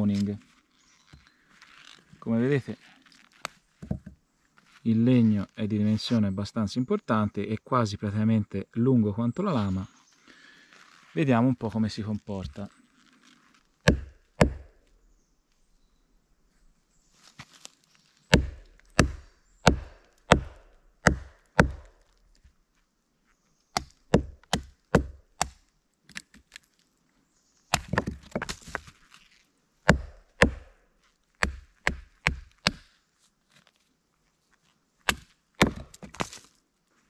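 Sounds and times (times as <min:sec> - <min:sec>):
wood splitting crackle: 0:17.4 - 0:22.5, 0:27.7 - 0:30.8, 0:31.4 - 0:32.9, 0:35.0 - 0:36.6.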